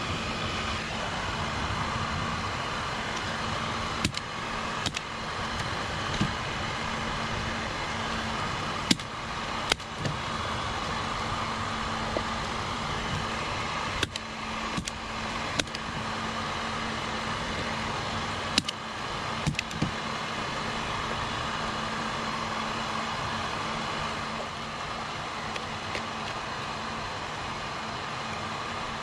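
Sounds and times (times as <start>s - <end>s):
faint hum: 0.0s - 29.0s
heat gun blowing whir: 0.0s - 29.0s
sharp clicks: 4.0s - 6.4s, 8.9s - 10.2s, 14.0s - 15.9s, 18.5s - 18.8s.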